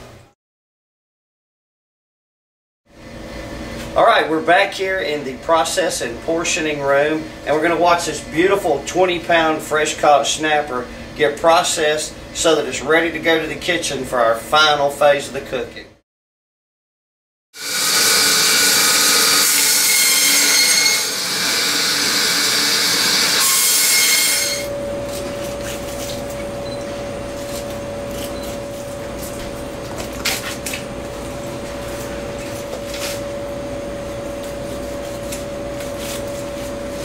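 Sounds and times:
mechanical hum with held tone: 0.0 - 0.4, 2.9 - 16.0, 17.6 - 37.0
loud machine whirring: 17.6 - 25.6.

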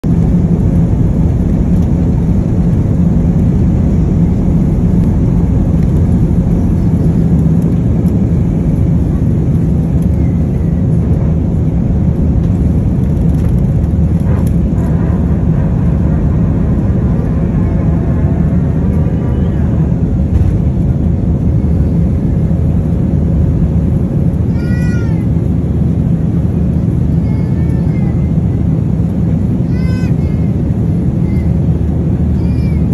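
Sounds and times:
constant cabin hum: 0.0 - 32.9
jet engine rumble: 0.0 - 32.9.

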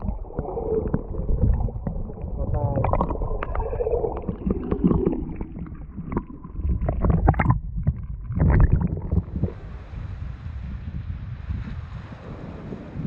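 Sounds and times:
underwater moving water rumble: 0.0 - 12.9
wind noise on microphone: 6.6 - 13.0.

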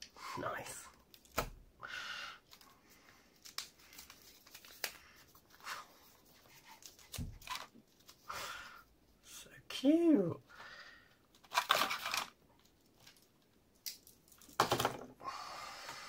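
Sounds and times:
plastic packaging crinkling: 11.4 - 14.6.

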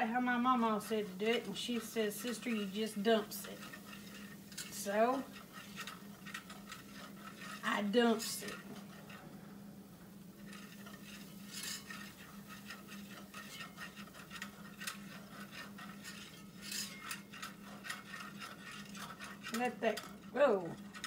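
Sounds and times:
whisk scraping a metal skillet: 0.0 - 21.0.

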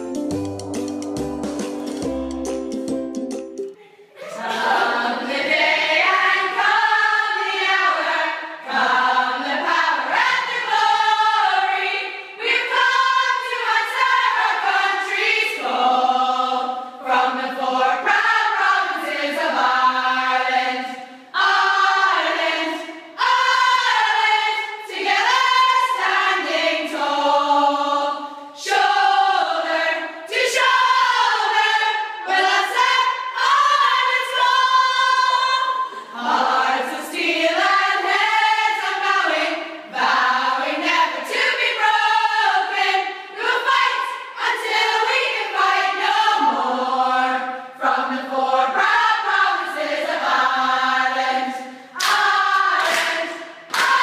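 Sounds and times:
women singing a cappella: 4.2 - 54.0.

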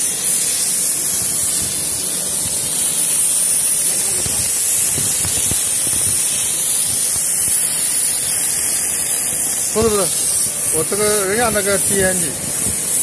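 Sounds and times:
welding arc hissing crackle: 0.0 - 13.0.

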